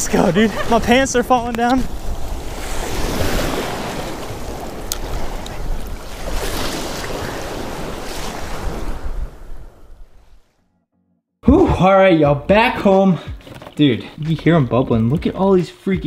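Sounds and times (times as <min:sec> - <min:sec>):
surf washing and breaking: 0:00.0 - 0:10.5
wind buffeting microphone: 0:00.0 - 0:10.5.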